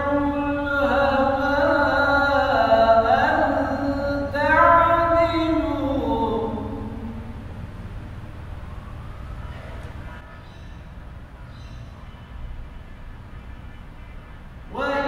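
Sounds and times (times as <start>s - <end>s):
man chanting melodic recitation: 0.0s - 7.4s, 14.7s - 15.0s.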